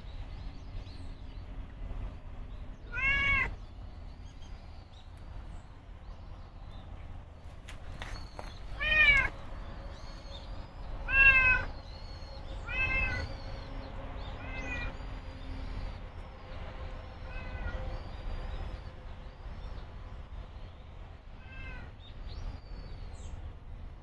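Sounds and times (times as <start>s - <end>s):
cat meowing: 2.9s - 3.6s, 8.8s - 9.3s, 11.0s - 11.7s, 12.6s - 13.3s, 14.4s - 15.0s, 17.3s - 17.8s, 21.4s - 22.0s.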